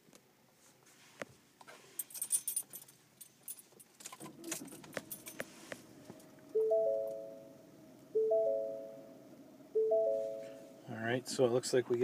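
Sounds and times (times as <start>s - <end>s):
car keys jingling: 2.0s - 5.4s.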